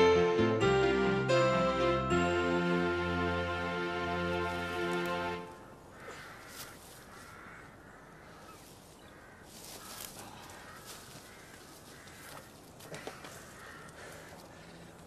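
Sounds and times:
rustling of dry undergrowth: 0:04.0 - 0:15.0
crows cawing: 0:05.8 - 0:15.0.

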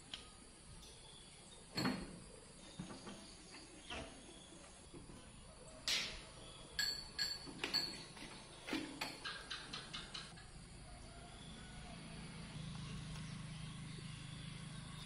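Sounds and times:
ringing clink: 0:06.8 - 0:08.1.

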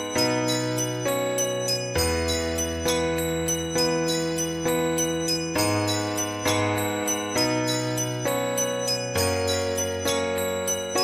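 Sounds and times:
high bell notes: 0:00.0 - 0:11.0
keyboard chords: 0:00.0 - 0:11.0.

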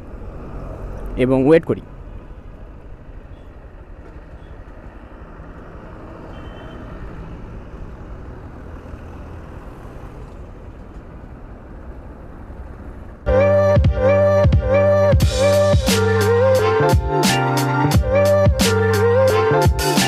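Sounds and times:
road traffic noise: 0:00.0 - 0:20.0
electronic music: 0:13.3 - 0:20.0.

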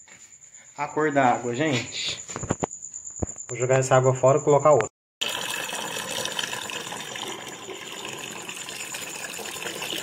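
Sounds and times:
tap water pouring into bucket: 0:05.2 - 0:10.0.

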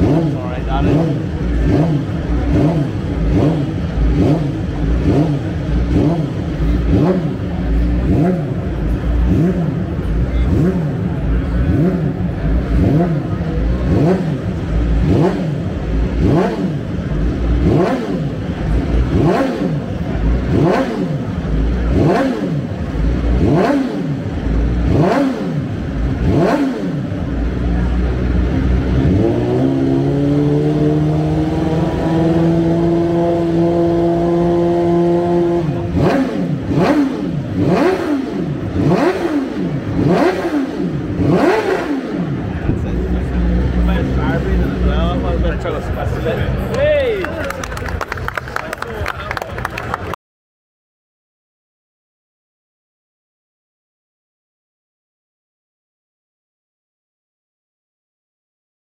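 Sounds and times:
motorcycle engine revving: 0:00.0 - 0:47.0.

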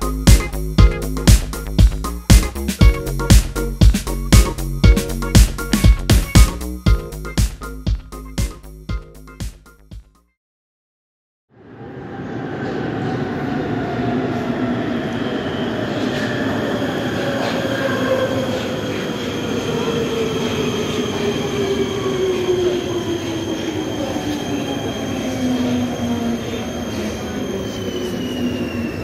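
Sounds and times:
wheels squealing: 0:15.2 - 0:29.0.

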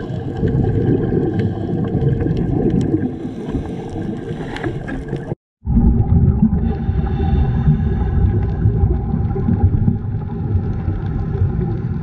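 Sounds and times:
faint crackles: 0:00.0 - 0:05.4
underwater rumble: 0:00.0 - 0:12.0.

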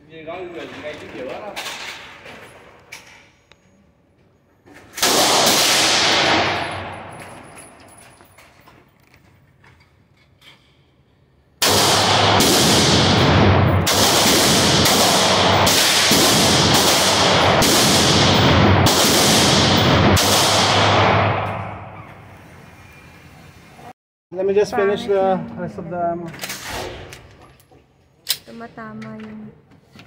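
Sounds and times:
pistol shots echoing: 0:05.0 - 0:07.2, 0:11.6 - 0:22.0.

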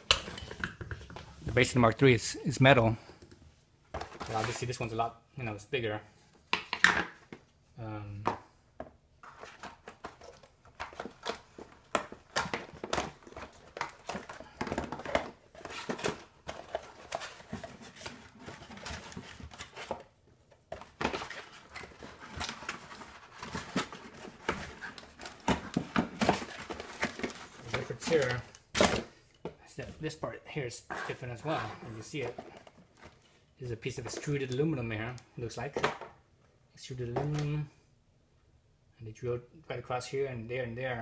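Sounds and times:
cardboard rustling and scraping: 0:04.0 - 0:04.8, 0:09.2 - 0:20.1, 0:20.7 - 0:29.0, 0:30.9 - 0:34.5.

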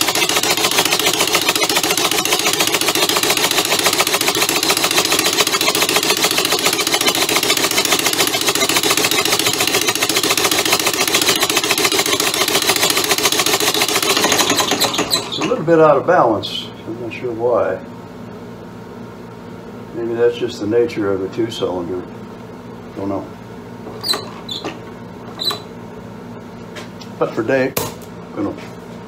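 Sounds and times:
air motor exhaust puffs and clatter: 0:00.0 - 0:16.6.

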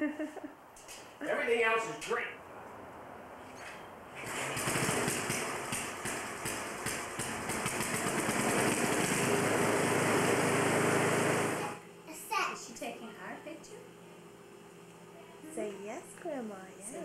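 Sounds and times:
engine running: 0:03.5 - 0:11.8.

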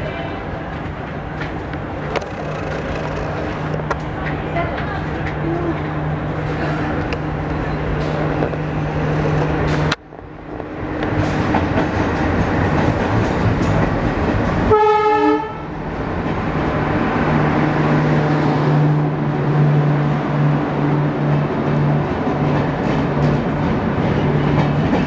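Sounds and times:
diesel locomotive engines droning: 0:00.0 - 0:25.0
train rumbling: 0:00.0 - 0:25.0
train horn blast: 0:14.7 - 0:15.7.

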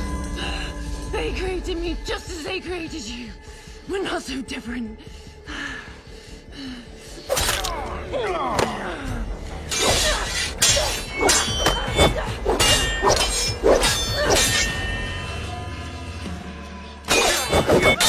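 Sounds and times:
sword blades clashing: 0:09.7 - 0:15.2, 0:17.1 - 0:18.0.

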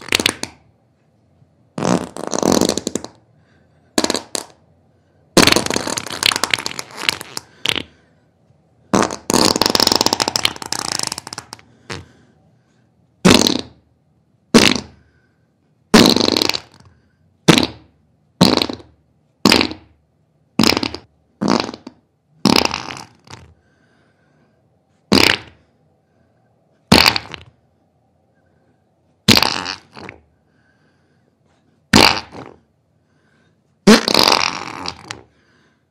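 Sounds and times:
fart sounds: 0:00.0 - 0:00.7, 0:01.8 - 0:03.3, 0:04.0 - 0:04.6, 0:05.4 - 0:08.0, 0:08.9 - 0:12.2, 0:13.2 - 0:13.9, 0:14.5 - 0:15.1, 0:15.9 - 0:20.0, 0:20.6 - 0:23.6, 0:25.1 - 0:25.7, 0:26.9 - 0:27.6, 0:29.2 - 0:30.3, 0:31.9 - 0:32.7, 0:33.8 - 0:35.4.

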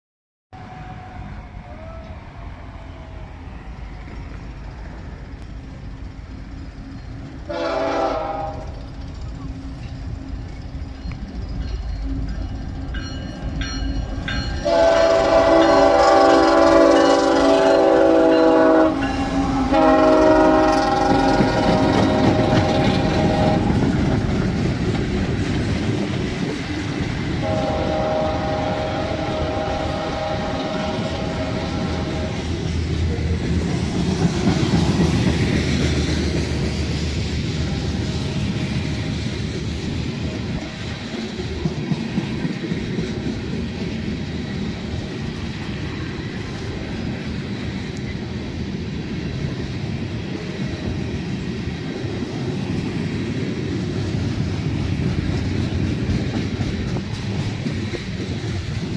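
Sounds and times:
train rumbling past on rails: 0:00.5 - 0:58.9
locomotive air horn blasts: 0:07.4 - 0:08.8, 0:14.6 - 0:23.9, 0:27.4 - 0:32.5.

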